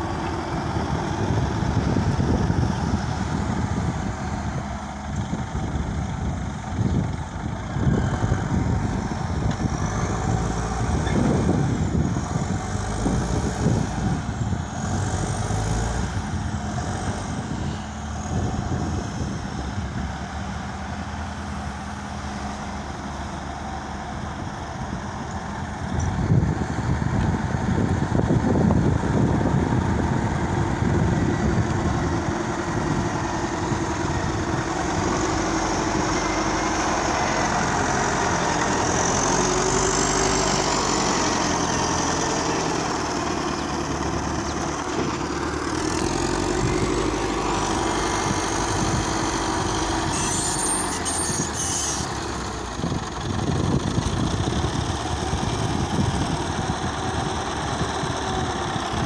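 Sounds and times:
diesel engines running: 0.0 - 59.0.

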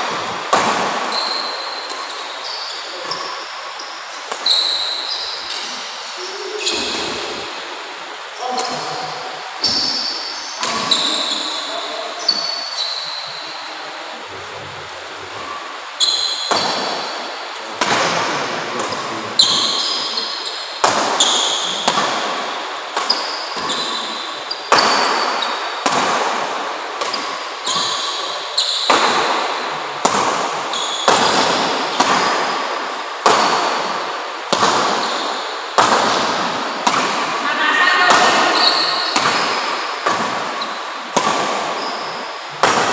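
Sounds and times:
rackets hitting a shuttlecock: 18.8 - 20.2, 20.8 - 35.2, 35.8 - 37.4, 38.1 - 42.9.

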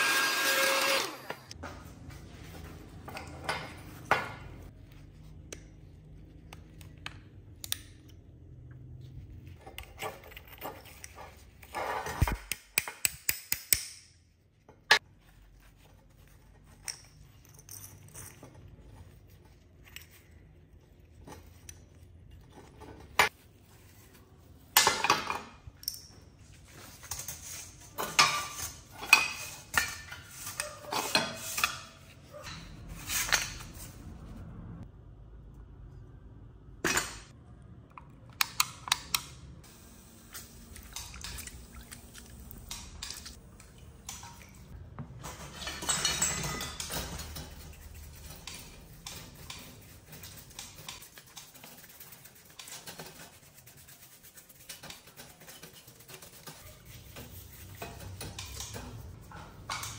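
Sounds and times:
metal tools clinking and clattering: 16.8 - 19.0, 45.2 - 48.4.

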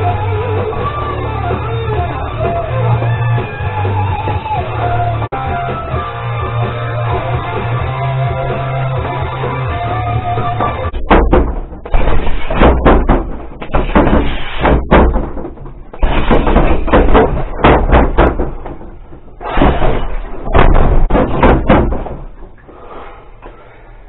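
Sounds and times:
gloved punches on rubber dummy: 11.0 - 18.8, 19.5 - 22.2.

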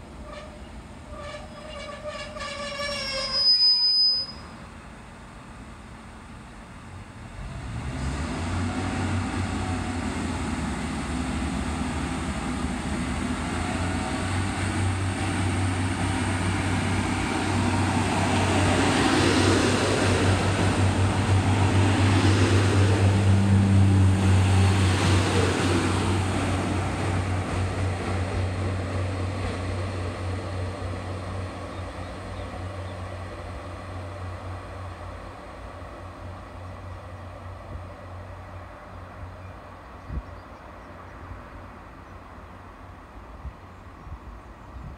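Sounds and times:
diesel engine low drone: 4.4 - 44.7
train wheels on rails: 4.5 - 44.9.

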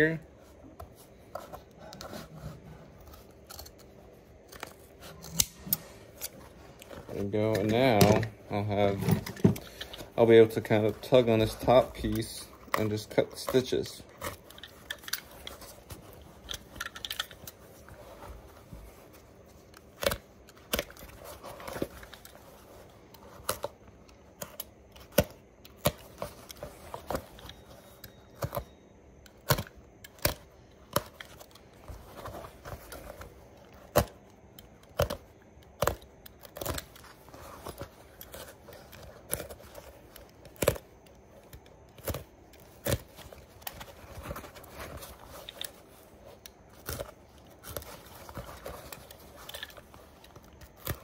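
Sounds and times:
soft tearing: 29.5 - 51.0.

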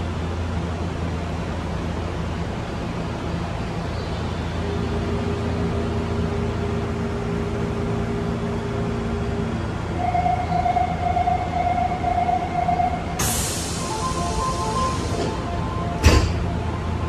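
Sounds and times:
subway car equipment hum: 0.0 - 17.0
door warning beeps: 10.3 - 17.0.

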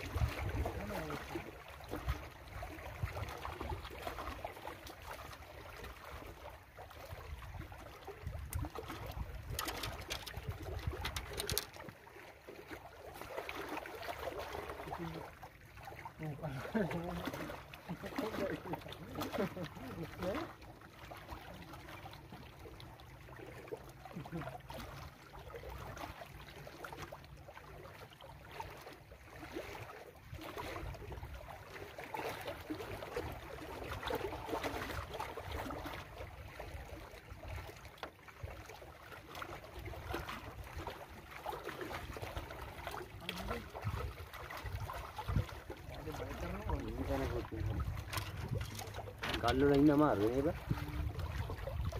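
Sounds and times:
waves lapping on rocky shore: 0.0 - 37.5, 38.7 - 51.9.

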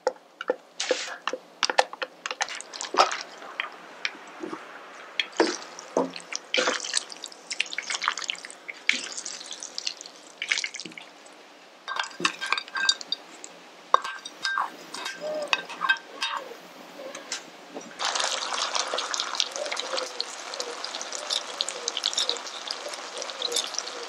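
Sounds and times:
wet squelching noodles: 2.2 - 11.4, 18.0 - 24.0
tongs clicking: 11.9 - 16.4, 19.9 - 24.0
tongs clinking against metal bowl: 11.9 - 16.4, 19.6 - 24.0.

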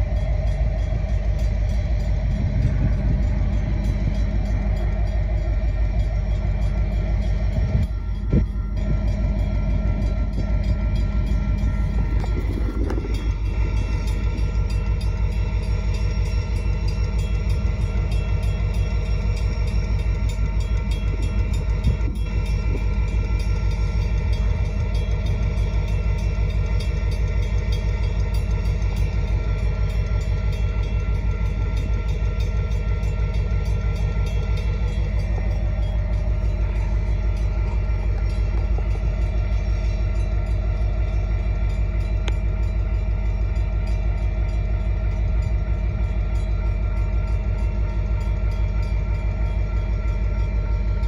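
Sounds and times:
freight train rumbling past: 0.0 - 51.0.

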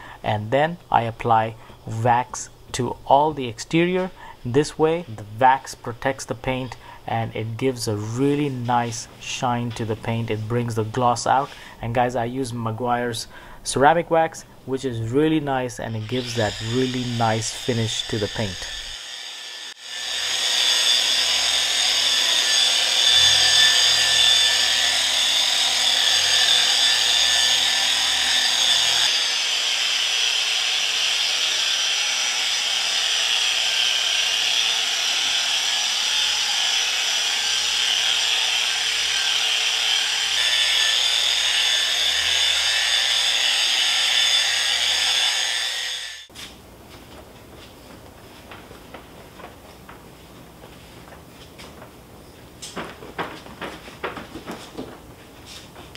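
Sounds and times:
orbital polisher whirring: 15.9 - 46.3.

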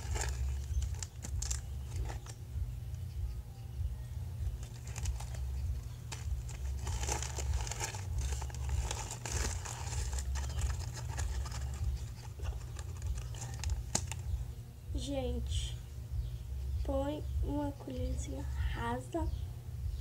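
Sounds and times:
plastic bag crinkling: 0.0 - 2.4, 4.6 - 14.3
low hum: 0.0 - 20.0.

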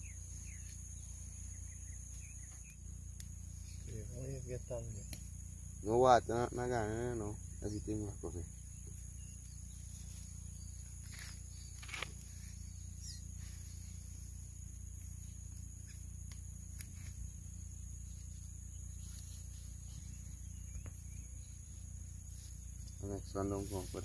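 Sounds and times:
insects chirring: 0.0 - 24.0
low outdoor rumble: 0.0 - 24.0.

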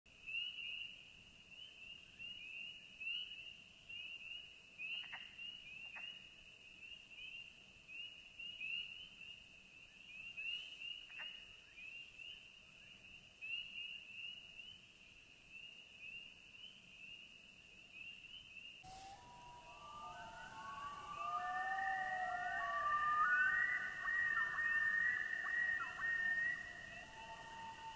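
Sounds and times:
frogs peeping: 18.9 - 27.9.

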